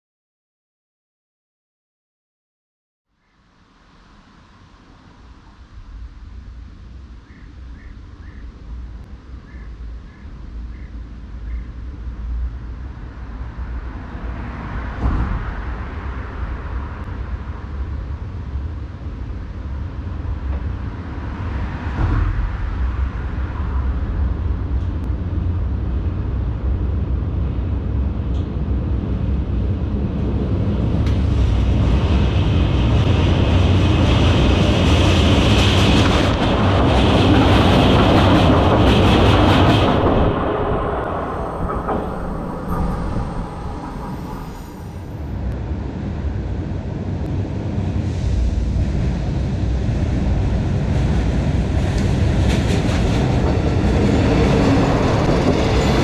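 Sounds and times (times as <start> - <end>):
train rumbling on a bridge: 4.1 - 56.0
hiss with ringing rails: 39.8 - 45.6.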